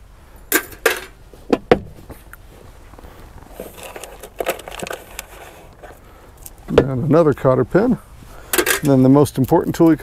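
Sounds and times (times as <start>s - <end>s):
small metal parts rattling: 3.6s - 5.4s, 8.5s - 9.0s.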